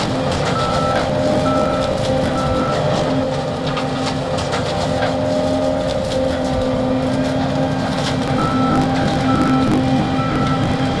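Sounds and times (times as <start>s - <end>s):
combine harvester engine drone: 0.0s - 11.0s
high warning beeps: 0.5s - 2.9s, 8.4s - 10.8s.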